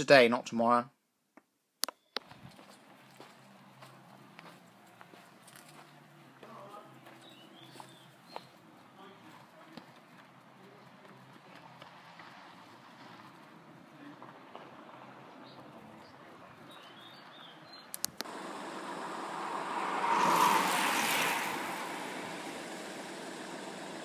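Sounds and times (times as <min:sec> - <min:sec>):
sharp clicks: 0:01.4 - 0:02.3, 0:17.9 - 0:18.3
birds chirping: 0:01.8 - 0:11.6, 0:15.0 - 0:24.0
vehicle passing by: 0:18.2 - 0:24.0.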